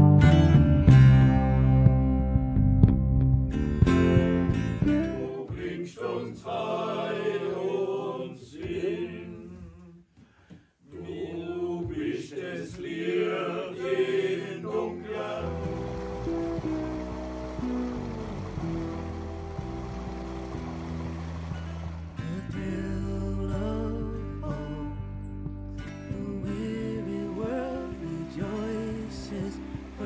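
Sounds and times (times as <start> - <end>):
plucked strings: 0.0 - 5.6, 15.4 - 30.0
people singing together: 4.9 - 10.0, 10.9 - 16.8, 26.1 - 30.0
rushing water from a weir: 15.4 - 22.5, 26.6 - 30.0.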